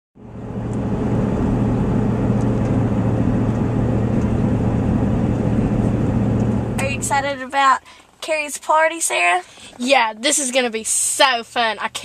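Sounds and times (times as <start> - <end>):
car engine hum: 0.2 - 8.2
tyre and road noise: 0.2 - 8.3.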